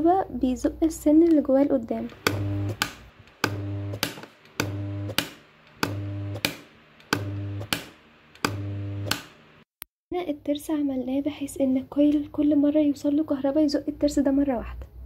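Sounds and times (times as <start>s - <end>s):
solenoid coil buzzing: 2.0s - 9.7s
solenoid plunger clicking: 2.1s - 9.4s.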